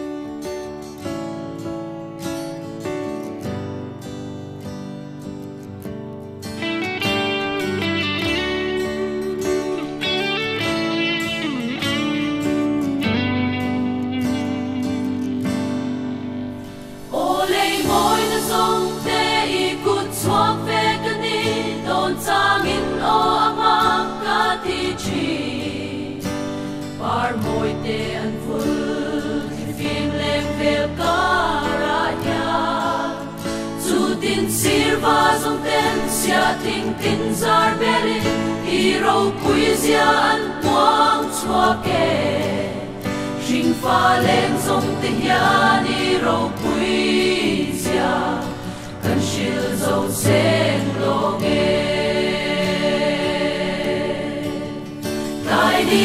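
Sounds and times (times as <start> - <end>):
choir singing a hymn: 7.7 - 10.2, 15.4 - 56.0
choir breaths: 16.5 - 56.0.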